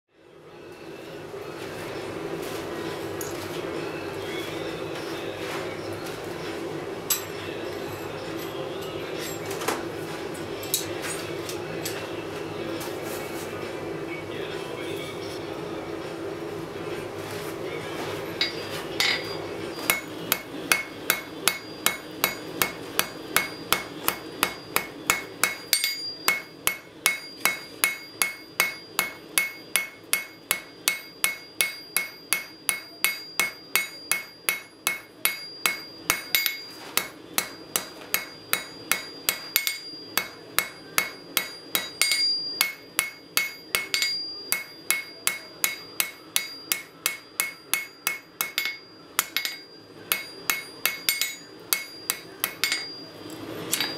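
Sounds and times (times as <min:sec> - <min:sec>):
hammer striking metal on anvil: 0:07.1 - 0:07.4, 0:18.4 - 0:53.9.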